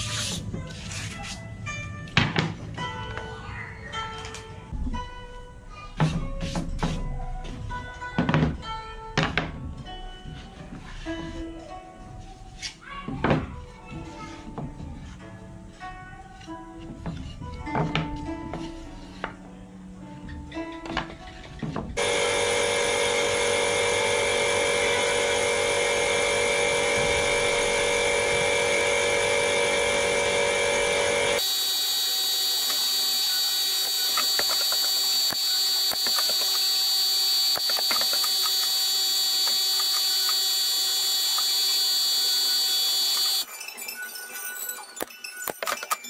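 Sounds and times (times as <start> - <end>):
machine drone with whining tones: 22.0 - 43.5.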